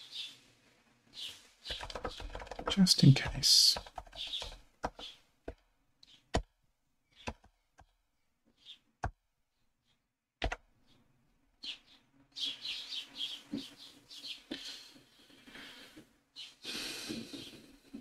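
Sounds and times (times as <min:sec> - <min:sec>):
computer keyboard clicks: 0:01.7 - 0:02.8, 0:03.8 - 0:05.1.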